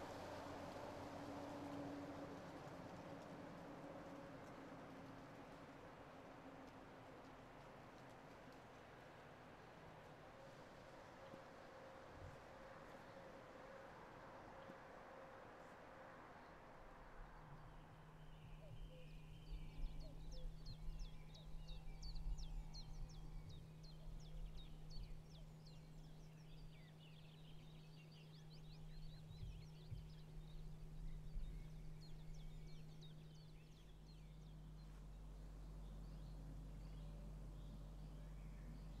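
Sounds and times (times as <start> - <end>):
low hum: 10.5 - 39.0
small birds chirping: 17.4 - 39.0.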